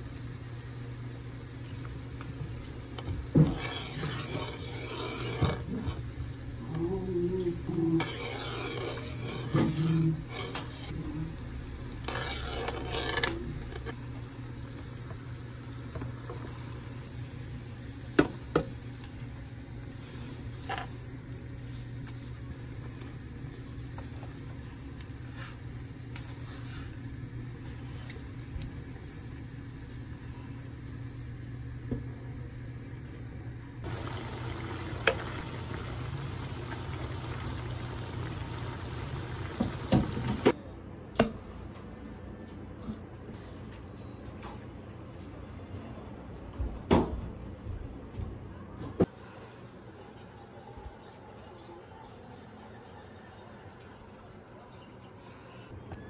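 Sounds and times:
steady low hum: 0.0 - 43.4
food being stirred: 1.8 - 6.7, 7.6 - 14.0, 33.8 - 40.6
wooden spoon scraping a pan: 3.0 - 6.2, 7.9 - 11.2, 11.8 - 14.0, 33.9 - 40.6
broth bubbling: 33.8 - 40.5.

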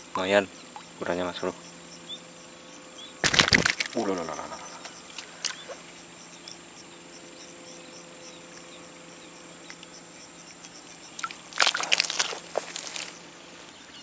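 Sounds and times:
faint low hum: 0.0 - 14.0
insects trilling: 0.0 - 14.0
small ticks: 0.7 - 13.8
knocks and rustling: 3.2 - 4.0.

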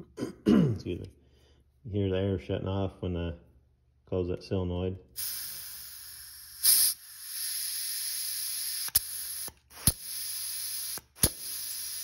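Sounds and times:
compressed air hissing: 5.2 - 12.0.

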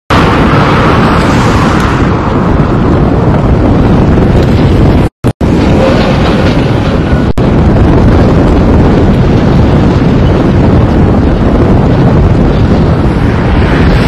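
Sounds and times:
wind buffeting microphone: 0.1 - 14.0.

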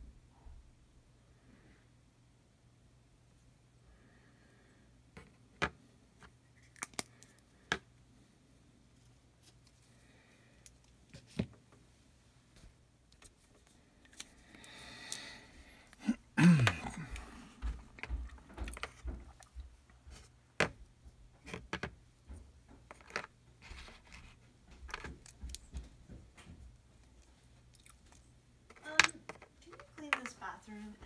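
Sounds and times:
small parts clicking and tapping: 28.1 - 30.4.

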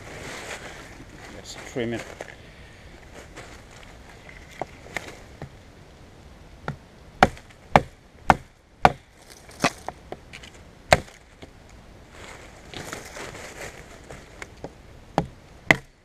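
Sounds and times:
knife chopping wooden branch: 7.2 - 10.0, 10.9 - 11.2, 15.2 - 15.9.

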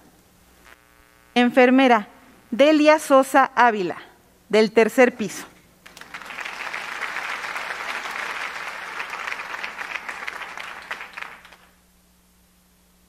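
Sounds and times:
hands clapping: 5.8 - 11.8.

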